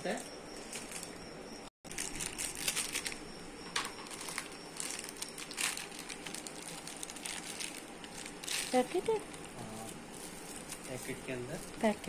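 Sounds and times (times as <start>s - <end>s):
plastic packet crinkling: 1.9s - 3.2s, 4.0s - 12.0s.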